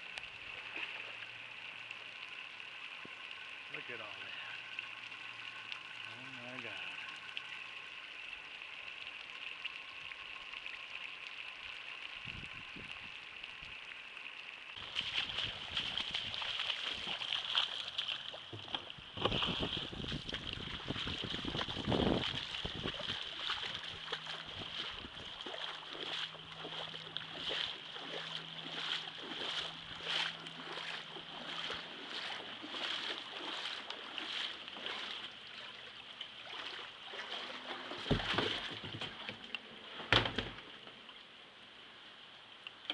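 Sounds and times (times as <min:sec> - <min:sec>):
footsteps wading through water: 0:00.0 - 0:03.9, 0:14.8 - 0:39.6.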